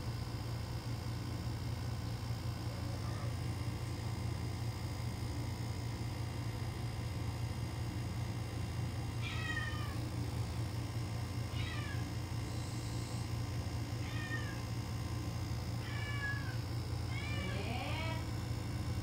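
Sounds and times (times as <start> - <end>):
cat meowing: 9.2 - 10.0, 11.5 - 12.1, 14.0 - 14.7, 15.8 - 18.2.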